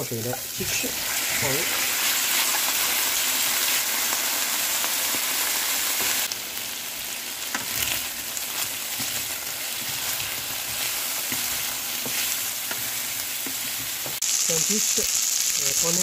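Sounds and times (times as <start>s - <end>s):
chicken wings sizzling in oil: 0.0s - 16.0s
wooden spatula scraping pan: 8.6s - 14.2s.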